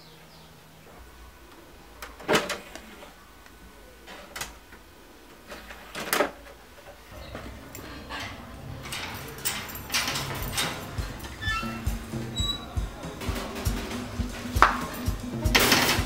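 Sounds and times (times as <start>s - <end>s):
disc tray clicks and clunks: 1.5s - 16.0s
metal slide bolt rattling: 7.1s - 16.0s.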